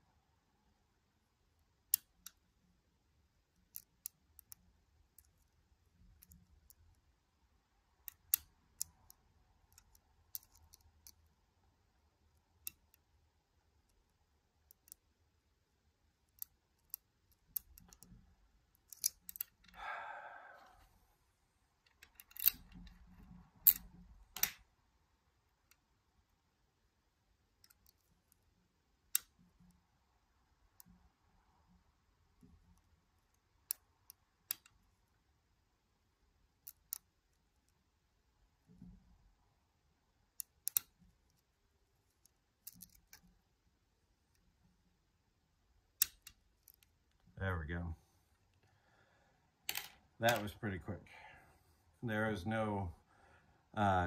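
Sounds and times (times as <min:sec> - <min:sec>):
lock pick clicking: 0:08.0 - 0:11.2, 0:16.3 - 0:18.1, 0:18.7 - 0:19.8, 0:21.9 - 0:23.0, 0:23.6 - 0:24.6, 0:40.4 - 0:40.9, 0:42.6 - 0:43.3, 0:46.0 - 0:46.9.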